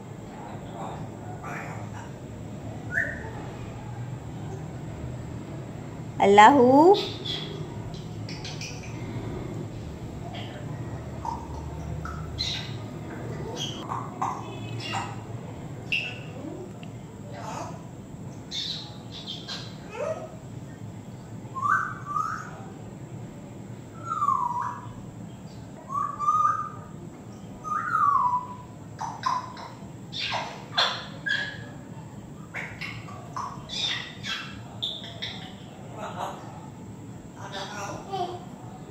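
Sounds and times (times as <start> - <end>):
parrot whistling and calling: 2.9 - 3.4, 21.5 - 22.6, 25.9 - 26.9, 27.6 - 31.7.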